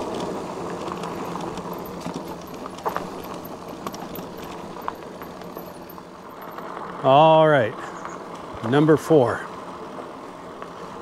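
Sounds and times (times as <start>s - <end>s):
bike rattling over bumps: 0.0s - 7.2s
bike tyres on dirt and wind: 0.0s - 11.0s.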